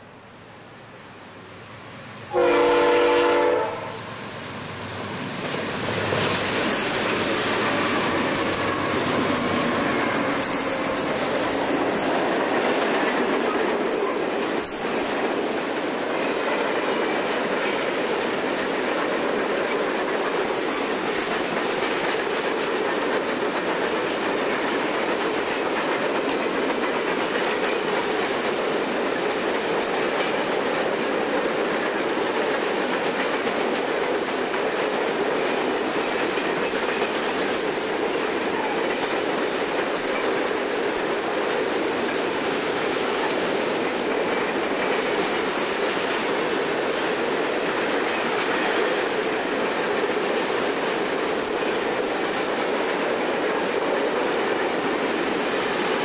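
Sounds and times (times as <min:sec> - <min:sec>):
train cars rolling past: 0:00.2 - 0:56.0
locomotive horn blast: 0:02.3 - 0:04.0.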